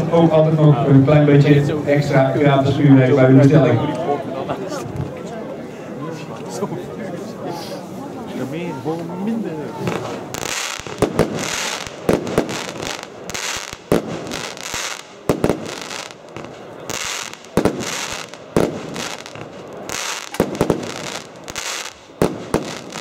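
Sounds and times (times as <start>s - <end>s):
fireworks shots hissing up: 9.8s - 23.0s
loud firework bangs: 9.8s - 23.0s.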